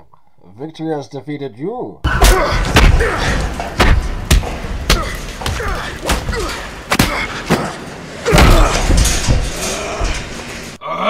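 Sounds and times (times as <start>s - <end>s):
punches landing thuds: 2.1s - 9.6s
grunts and strained breaths: 4.9s - 11.0s.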